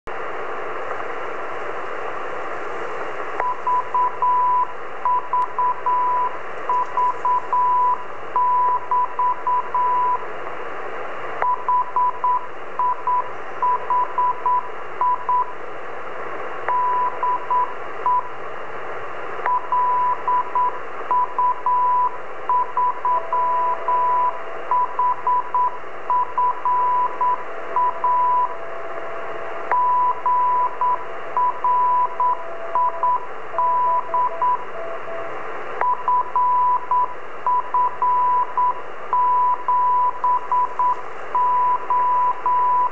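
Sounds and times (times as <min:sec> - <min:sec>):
receiver hiss: 0:00.1 - 0:42.9
morse code tone: 0:03.4 - 0:10.2, 0:19.5 - 0:42.9.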